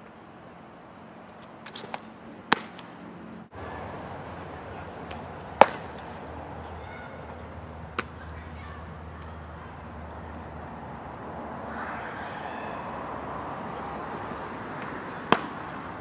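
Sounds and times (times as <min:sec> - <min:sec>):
softball smacking into leather mitt: 0:01.7 - 0:02.9, 0:05.1 - 0:06.0, 0:14.8 - 0:15.6.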